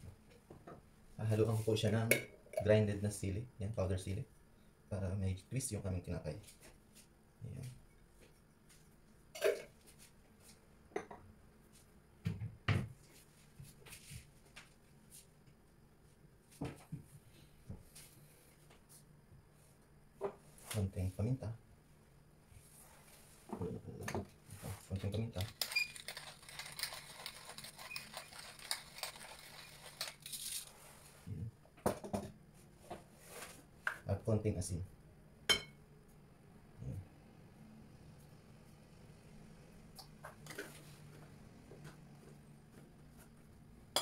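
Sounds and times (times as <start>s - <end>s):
pepper mill grinding: 24.9s - 30.7s.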